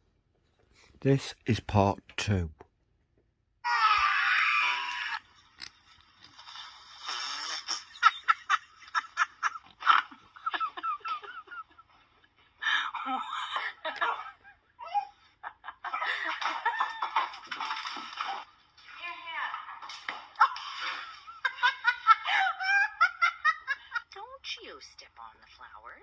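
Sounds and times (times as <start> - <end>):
people talking: 1.0 - 2.6, 19.0 - 19.7, 23.9 - 26.0
people laughing: 7.7 - 17.7, 20.4 - 24.2.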